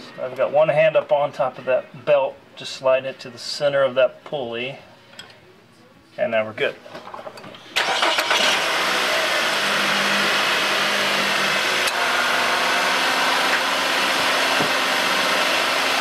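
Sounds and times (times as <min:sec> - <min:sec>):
car engine starting and idling: 0:07.8 - 0:16.0.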